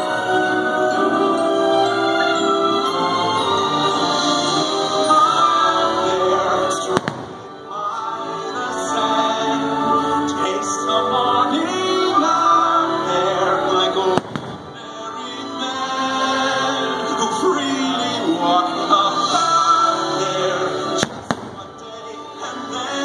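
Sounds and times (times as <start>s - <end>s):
music with voices singing: 0.0s - 23.0s
firework bangs: 6.9s - 7.6s, 14.1s - 14.9s, 21.0s - 21.9s.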